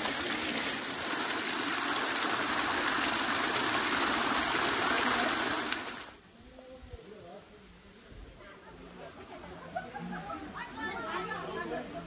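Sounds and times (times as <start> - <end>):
water pouring from stone spouts: 0.0 - 6.2
water splashing into channel: 0.0 - 6.2.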